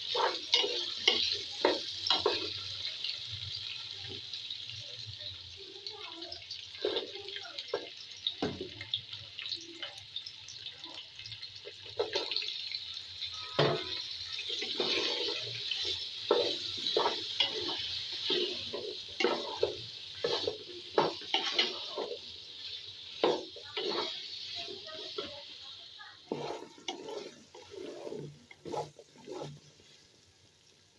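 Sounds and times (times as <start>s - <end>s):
wooden spatula scraping pot: 0.0s - 2.6s, 14.5s - 25.5s, 26.2s - 30.1s
vegetables sizzling in oil: 0.0s - 30.9s.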